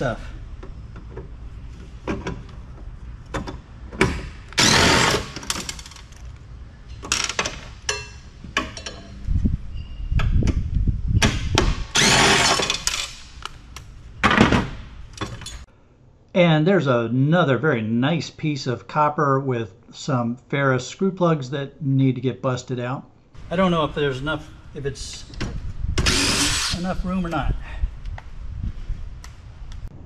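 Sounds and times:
cordless driver whirring: 26.0s - 26.8s.

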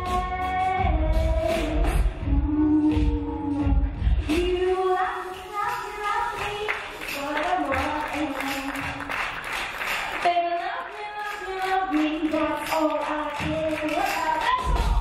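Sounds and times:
woman singing into microphone: 0.0s - 9.2s, 10.2s - 15.0s
backing music: 0.0s - 15.0s
audience clapping: 6.4s - 15.0s.

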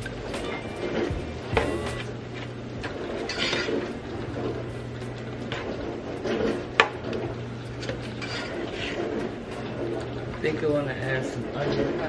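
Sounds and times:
steady low hum: 0.0s - 12.0s
utensil scraping a metal pot: 8.1s - 10.0s.

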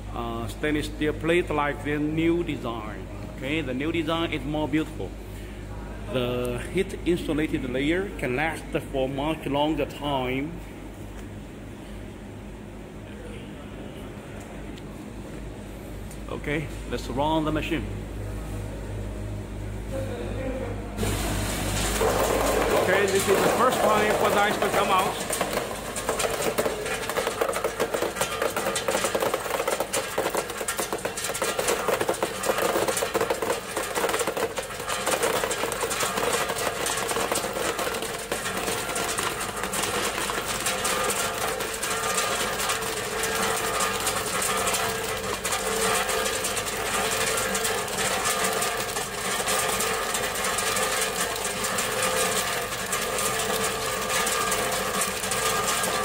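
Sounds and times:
compressor running: 15.5s - 56.0s
ice clattering into plastic basin: 21.1s - 56.0s.

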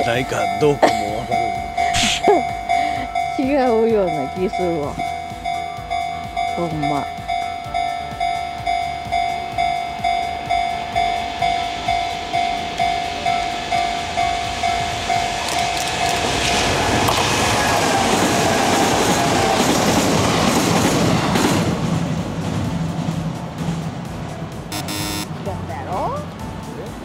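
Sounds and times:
level-crossing bell ringing: 0.0s - 16.2s, 24.7s - 25.3s
electric train passing: 0.0s - 27.0s.

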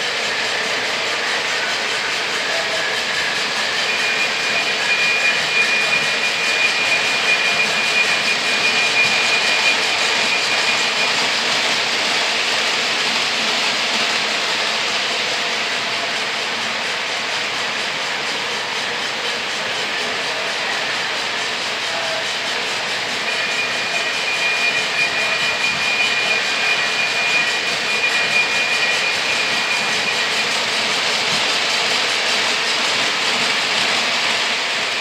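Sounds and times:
thin high tone: 21.8s - 31.0s.

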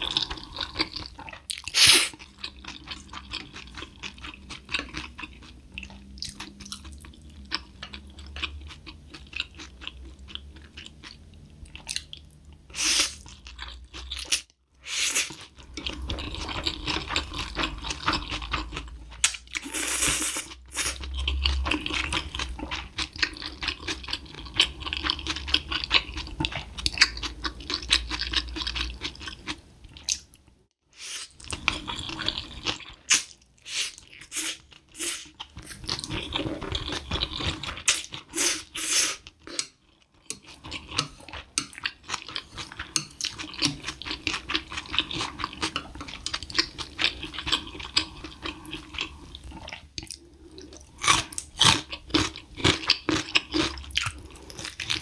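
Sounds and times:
chewing: 0.0s - 14.4s, 15.3s - 30.5s, 31.2s - 55.0s
slurping noodles: 1.6s - 2.2s, 19.6s - 21.1s, 30.9s - 39.6s.

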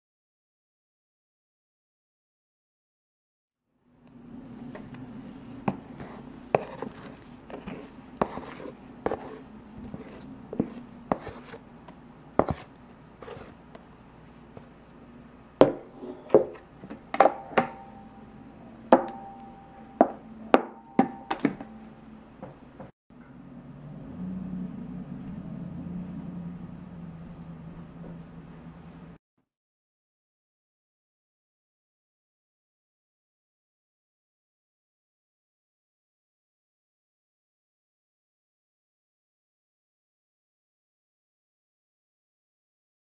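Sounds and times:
low steady hum: 3.8s - 29.2s
batter scraped into metal pan: 5.7s - 11.6s, 12.4s - 13.6s.

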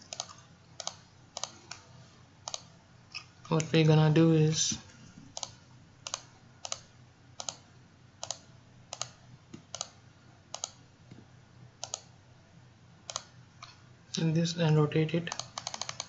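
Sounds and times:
computer mouse clicks: 0.0s - 1.8s, 2.4s - 3.7s, 5.3s - 7.6s, 8.2s - 10.8s, 11.8s - 12.1s, 13.1s - 13.8s, 15.3s - 16.0s.

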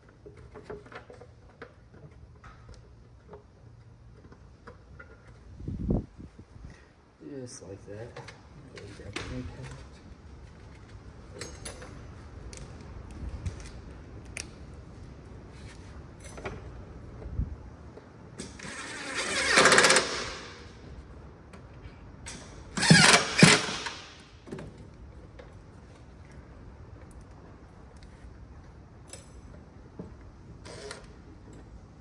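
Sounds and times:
power driver running screws: 18.6s - 20.4s, 22.8s - 24.1s, 30.6s - 31.1s.

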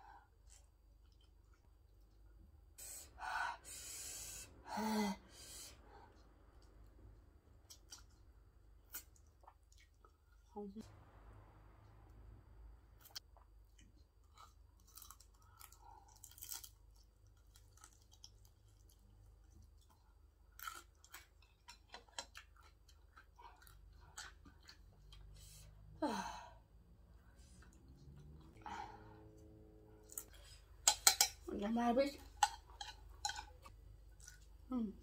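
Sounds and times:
person chewing food: 0.3s - 2.4s, 7.5s - 10.5s, 13.0s - 25.5s, 32.3s - 34.7s.

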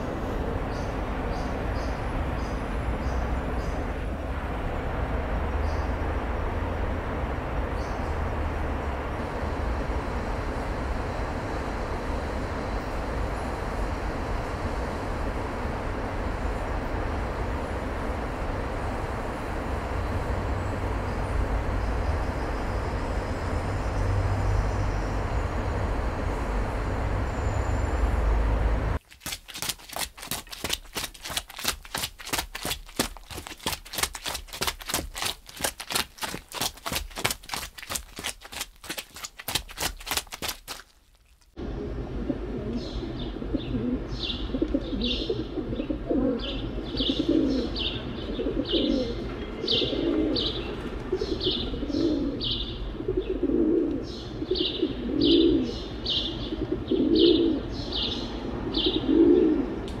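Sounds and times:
sharp taps: 29.0s - 40.9s
small birds chirping: 29.2s - 40.9s
pigeons cooing: 41.6s - 57.8s, 58.7s - 59.9s.

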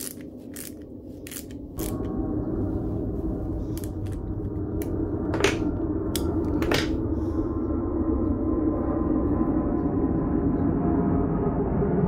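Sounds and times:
sharp metallic clicks of wrenches: 0.0s - 2.0s.

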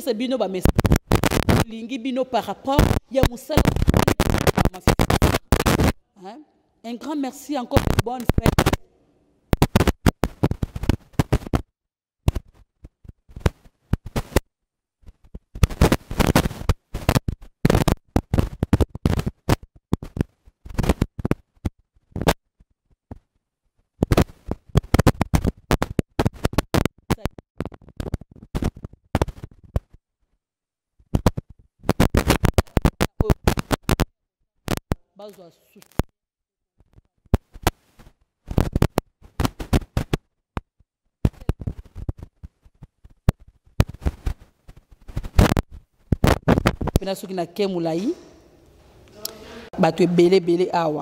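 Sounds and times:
crackling woman's speech: 0.0s - 8.8s, 27.1s - 27.4s, 32.2s - 33.7s, 35.2s - 36.0s, 46.9s - 48.4s, 49.1s - 51.0s.

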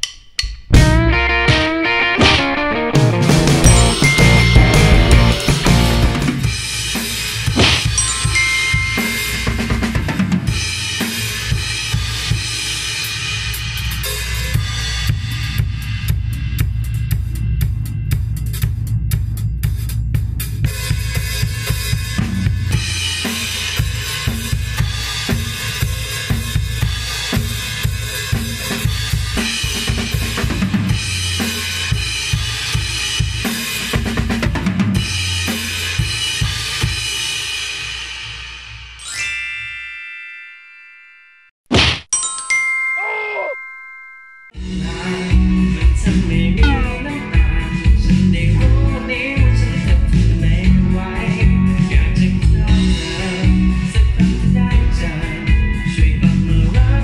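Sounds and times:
bass drum: 0.5s - 1.6s, 3.0s - 6.5s, 45.4s - 55.2s
cymbals: 3.6s - 15.6s.

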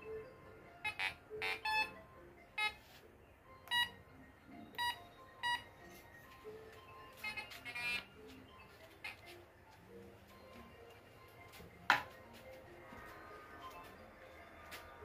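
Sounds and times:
metal detector beeping: 0.8s - 2.0s, 3.6s - 4.0s, 4.6s - 6.0s, 7.0s - 8.2s.

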